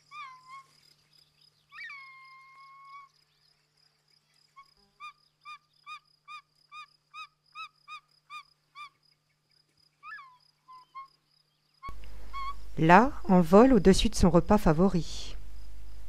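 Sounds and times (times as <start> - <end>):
eagle whistling calls: 11.8 - 12.8.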